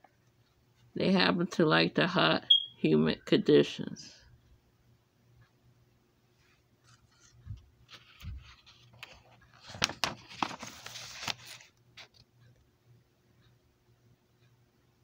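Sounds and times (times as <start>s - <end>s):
book pages turning: 6.8s - 12.2s
paper rustling and crackling: 7.9s - 12.2s.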